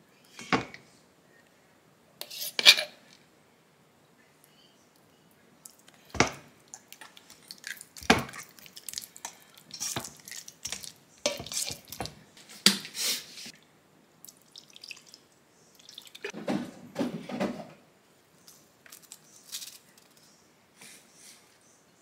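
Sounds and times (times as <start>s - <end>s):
kitchen utensils and dishes clattering: 2.2s - 3.1s, 9.8s - 13.0s, 16.2s - 17.8s.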